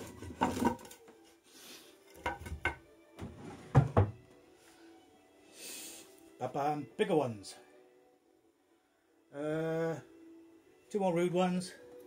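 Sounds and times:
wooden board knocking on wood: 2.2 - 4.2.

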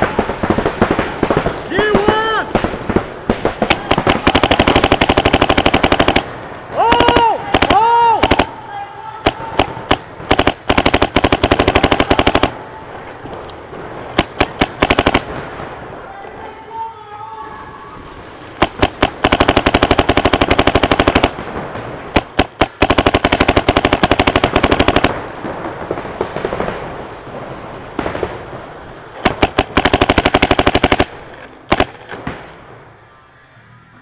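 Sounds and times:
paintball gun firing: 3.4 - 8.6, 9.2 - 12.6, 14.2 - 15.4, 18.6 - 21.5, 22.1 - 25.2, 29.2 - 32.3.

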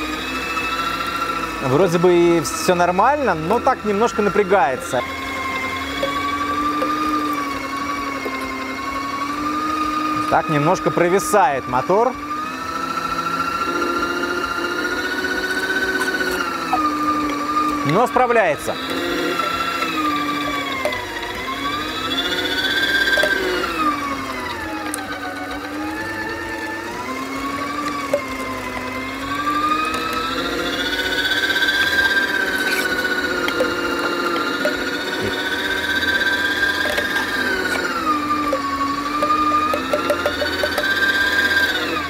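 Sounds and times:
meat grinder motor whining: 0.0 - 42.0.

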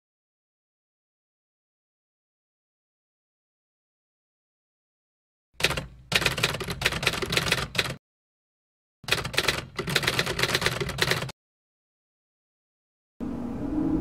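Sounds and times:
keyboard typing clatter: 5.6 - 8.0, 9.0 - 11.3.

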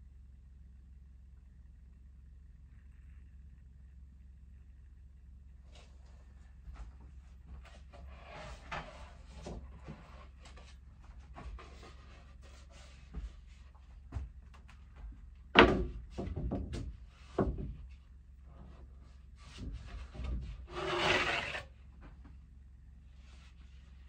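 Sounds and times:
loud wooden knock: 15.6 - 17.8
scraping rattle: 20.6 - 21.7.

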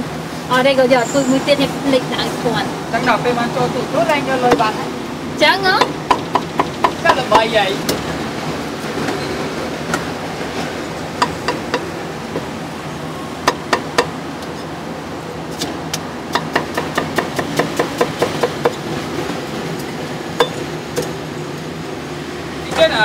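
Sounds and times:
cleaver chopping on wooden block: 16.3 - 18.8.

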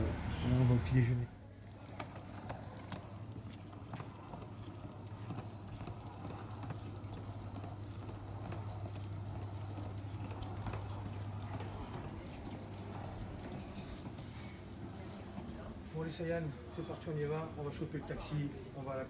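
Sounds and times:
suitcase wheels rolling on tiles: 1.5 - 16.2
wheels clacking over tile joints: 1.7 - 14.4
footsteps: 1.7 - 16.2.

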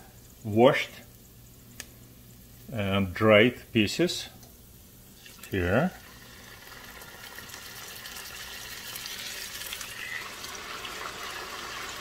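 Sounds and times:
steak sizzling in oil: 6.0 - 12.0.

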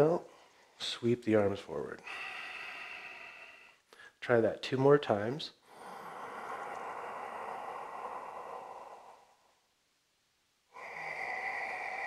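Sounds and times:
man breathing deeply: 2.0 - 4.2, 5.6 - 9.7, 10.7 - 12.0.

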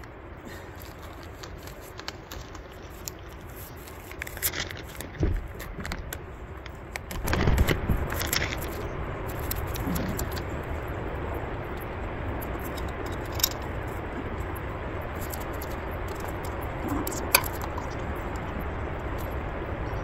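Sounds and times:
steady hiss: 0.0 - 20.0
gear rustling: 0.5 - 6.2.

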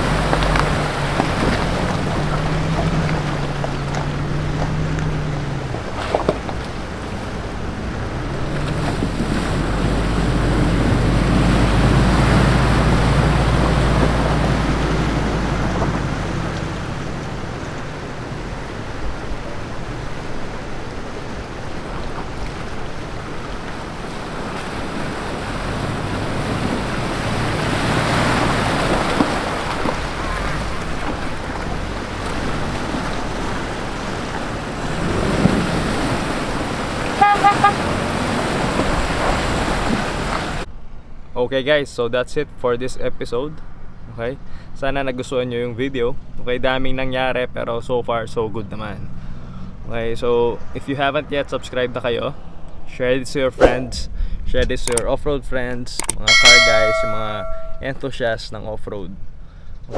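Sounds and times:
water rushing and splashing: 0.0 - 40.7, 56.3 - 57.9
truck engines running: 0.0 - 41.4, 42.0 - 55.0.

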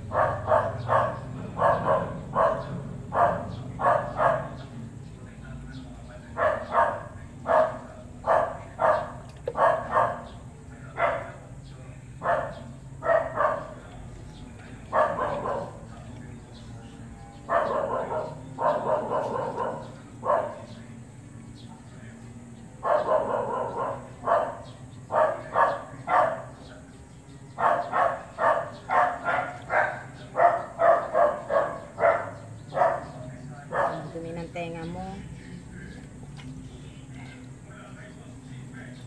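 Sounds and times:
dog barking: 0.0 - 4.7, 6.3 - 11.4, 12.2 - 13.8, 14.9 - 16.0, 17.4 - 20.8, 22.8 - 26.7, 27.6 - 34.6.

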